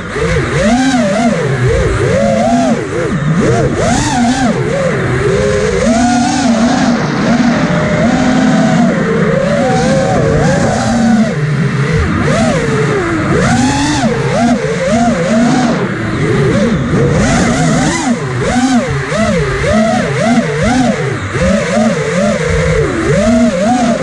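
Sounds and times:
drone motors whining: 0.0s - 24.0s.

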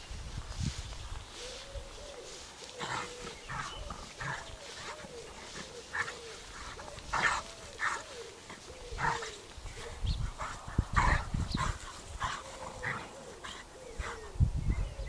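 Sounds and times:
dogs huffing: 2.6s - 14.4s
dogs whining: 2.8s - 14.4s.

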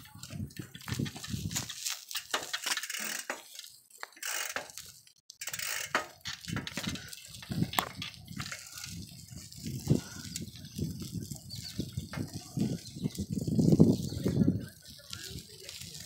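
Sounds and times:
bicycle rattling over bumps: 0.0s - 16.0s.

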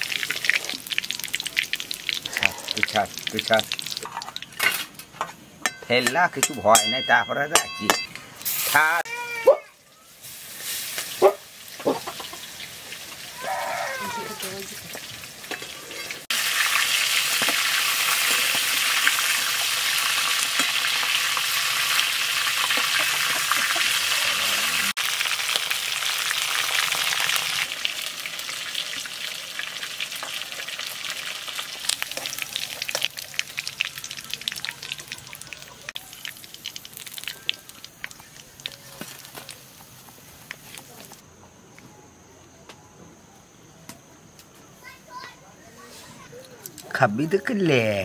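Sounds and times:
deep-frying sizzle in oil: 0.0s - 5.0s, 8.4s - 41.2s
oil crackling: 0.0s - 7.0s, 10.0s - 41.2s.

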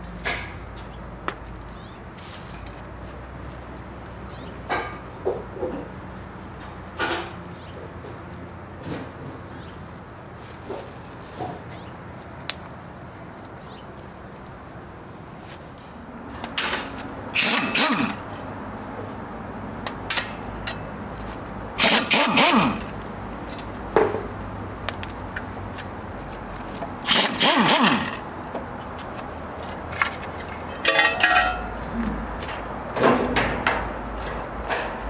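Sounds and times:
pneumatic impact wrench bursts: 17.4s - 18.3s, 21.8s - 23.0s, 27.0s - 28.2s.

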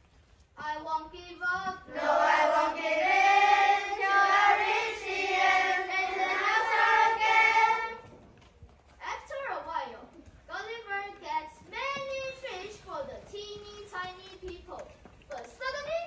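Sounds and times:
children singing in unison: 1.9s - 8.0s.

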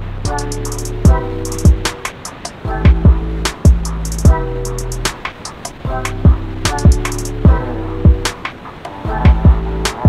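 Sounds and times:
deep kick drums: 0.0s - 2.0s, 2.7s - 4.4s, 5.9s - 8.4s, 9.1s - 9.7s
electronic music with beat: 0.0s - 10.0s.

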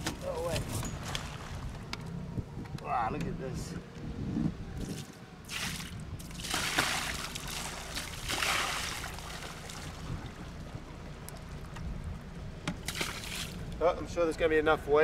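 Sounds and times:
water splashing on deck: 4.9s - 10.7s, 12.8s - 13.6s.

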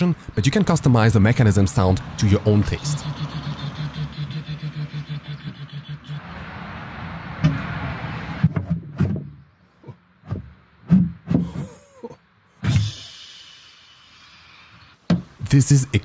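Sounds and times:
burst of hiss: 12.6s - 15.0s.

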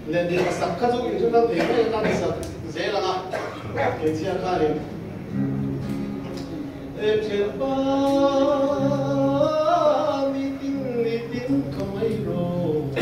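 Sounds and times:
acoustic guitar: 0.0s - 13.0s
man singing: 7.0s - 13.0s.

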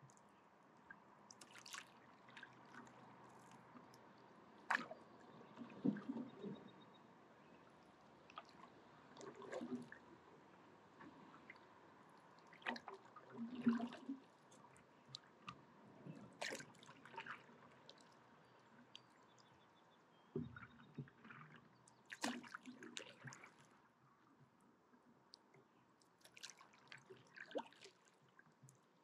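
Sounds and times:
paddle splashing in water: 1.3s - 3.8s, 4.6s - 6.7s, 8.3s - 10.0s, 12.4s - 14.4s, 16.3s - 18.1s, 22.1s - 23.7s
water trickling off paddle: 1.3s - 6.8s.

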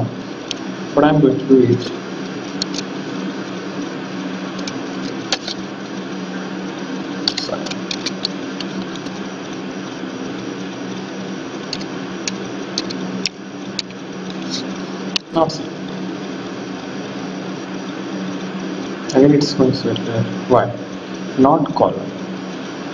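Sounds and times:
steady low hum: 0.0s - 22.9s
keyboard and mouse clicks: 2.6s - 2.9s, 4.6s - 5.6s, 11.7s - 14.6s.

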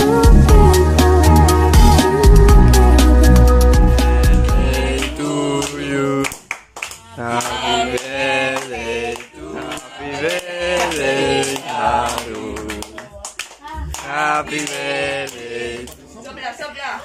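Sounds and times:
group singing a birthday song: 0.0s - 16.7s
hand claps: 5.0s - 16.0s.

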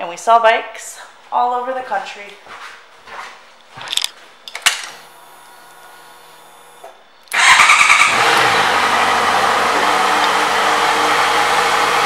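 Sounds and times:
faint steady hum: 0.0s - 7.4s
motorcycle engine running: 7.4s - 12.0s.

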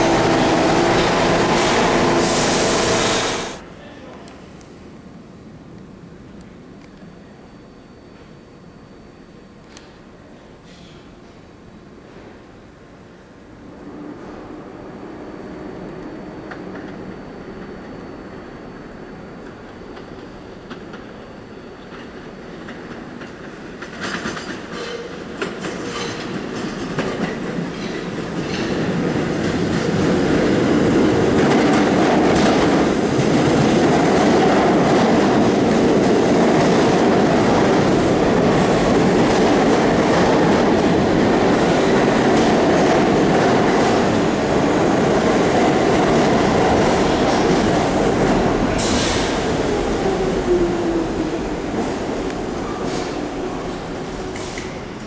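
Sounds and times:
subway train rumble: 0.0s - 55.0s.

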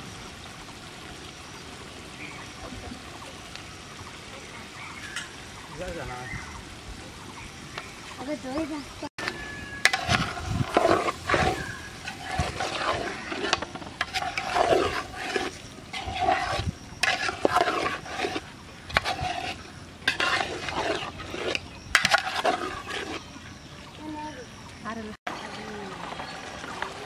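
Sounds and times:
metal spoon scraping pot bottom: 9.2s - 23.3s.

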